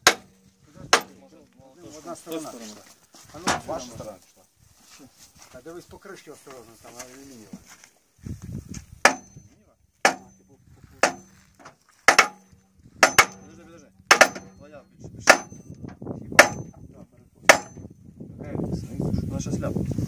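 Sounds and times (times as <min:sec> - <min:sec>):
hammer on metal cover: 0:00.0 - 0:01.2, 0:09.0 - 0:10.4, 0:11.0 - 0:11.4, 0:12.1 - 0:16.8, 0:17.5 - 0:17.9.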